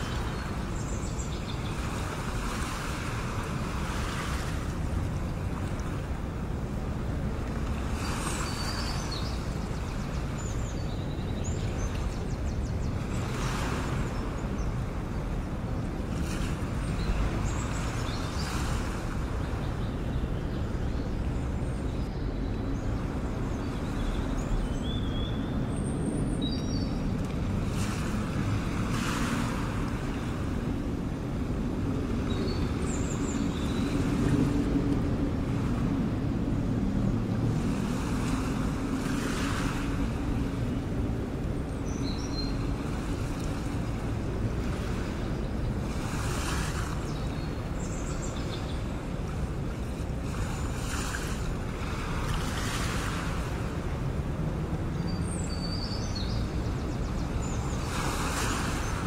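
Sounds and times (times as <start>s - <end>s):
waves washing in: 0.0s - 59.0s.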